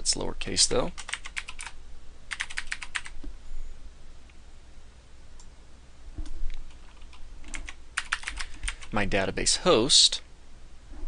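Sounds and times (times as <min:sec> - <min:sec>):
keyboard typing: 0:00.9 - 0:03.2, 0:06.2 - 0:09.0.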